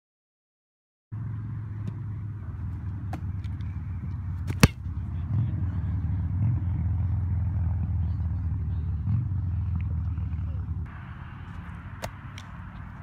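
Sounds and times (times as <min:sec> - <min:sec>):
foot striking a football: 0:03.0 - 0:03.6, 0:04.4 - 0:04.8, 0:11.9 - 0:13.0.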